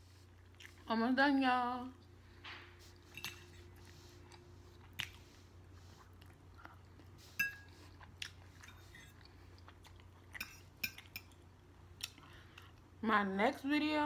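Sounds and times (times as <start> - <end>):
chewing food: 0.2 - 0.9, 3.0 - 12.9.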